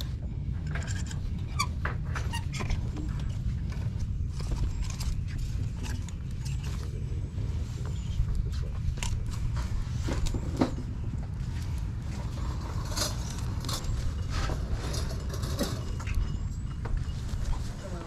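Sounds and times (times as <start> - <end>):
steady low rumble: 0.0 - 18.0
hangers scraping on metal rail: 12.2 - 16.2.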